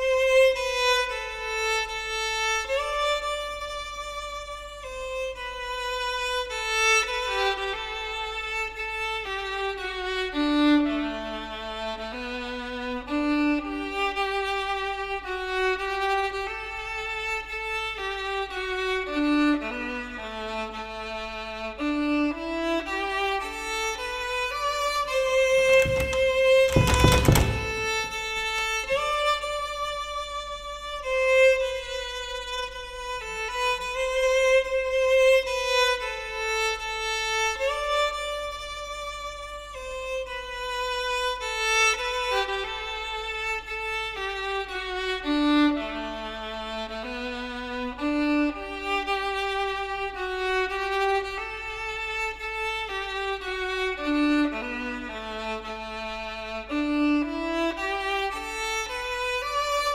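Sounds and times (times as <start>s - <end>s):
violin-like film music melody: 0.0s - 59.9s
short thump: 25.8s - 28.2s.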